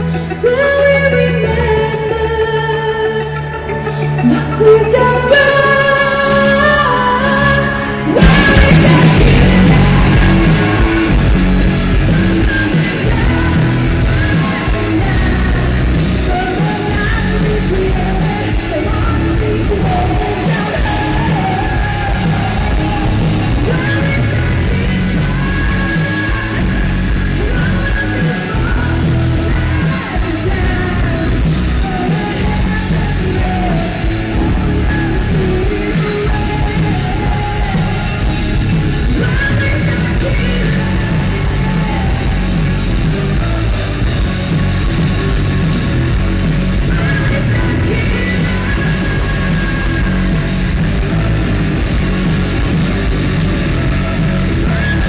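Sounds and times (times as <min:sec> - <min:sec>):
woman singing: 0:00.0 - 0:44.4, 0:46.7 - 0:52.6, 0:53.2 - 0:55.0
metal band playing live: 0:00.0 - 0:55.0.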